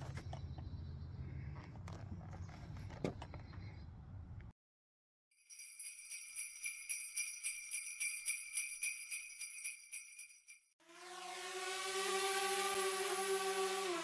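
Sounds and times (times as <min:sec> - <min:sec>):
sleigh bells jingling: 0:05.4 - 0:10.8.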